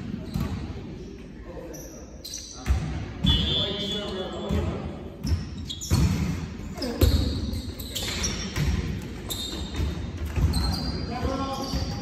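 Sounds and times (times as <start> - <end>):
volleyball slaps in a hall: 0.0 - 1.7, 2.3 - 12.0.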